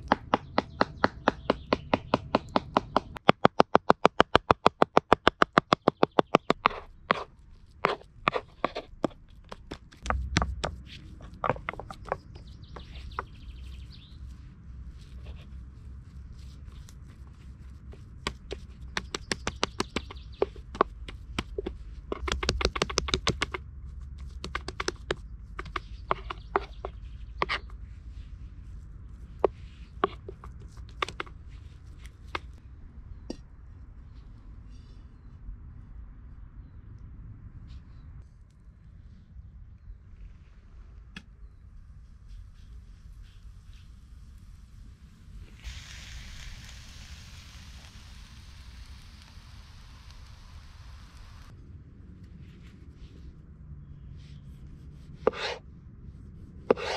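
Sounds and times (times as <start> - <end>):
knife chopping meat on wood board: 0.0 - 7.2.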